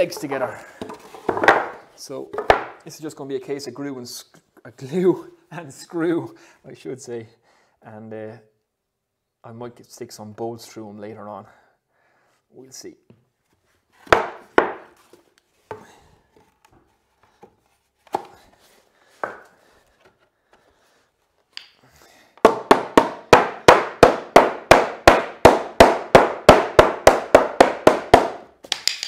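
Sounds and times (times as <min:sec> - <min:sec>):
wooden knocks of boards: 0:00.8 - 0:02.8, 0:14.0 - 0:14.9, 0:19.2 - 0:19.5
hammer striking timber: 0:14.1 - 0:14.9, 0:22.4 - 0:29.0.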